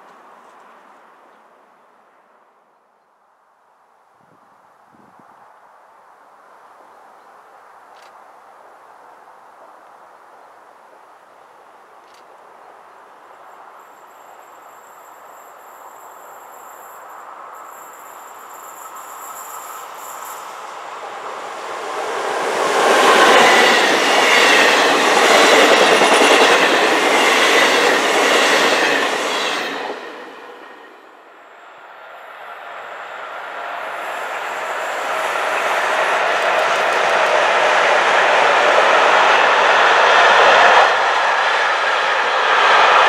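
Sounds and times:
passenger train passing: 13.0 - 43.0
electric freight train approaching: 13.5 - 43.0.

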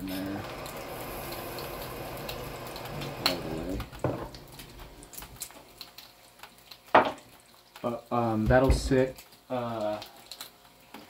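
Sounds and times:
faucet running water into jar: 0.0 - 6.0.

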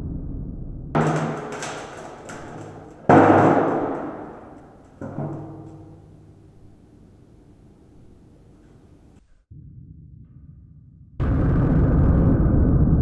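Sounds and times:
axe handle striking metal: 1.0 - 7.5.

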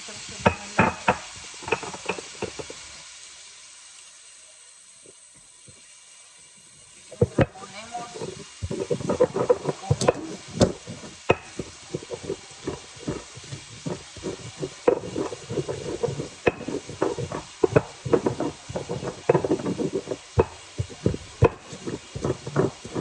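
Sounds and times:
gritty scraping: 7.1 - 23.0
stone pestle knocking: 8.2 - 23.0.

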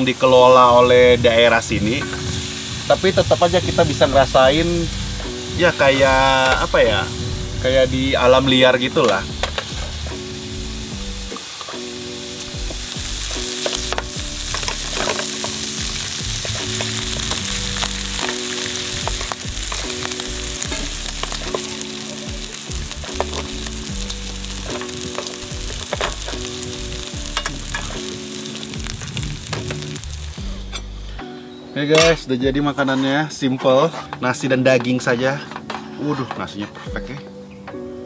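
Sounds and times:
meat sizzling in grill pan: 0.0 - 30.6
metal chopsticks clicking on pan: 27.3 - 27.9.

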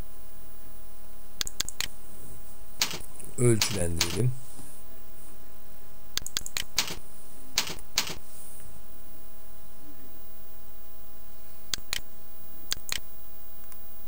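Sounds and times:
steady electrical hum: 0.0 - 14.0
keyboard keystrokes: 2.8 - 3.0, 3.6 - 4.2, 6.2 - 7.0, 7.6 - 8.2.

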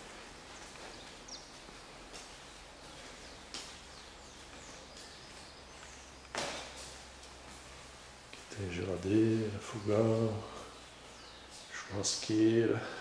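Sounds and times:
low steady hum: 0.0 - 13.0
faint bird chirps: 0.4 - 7.0.

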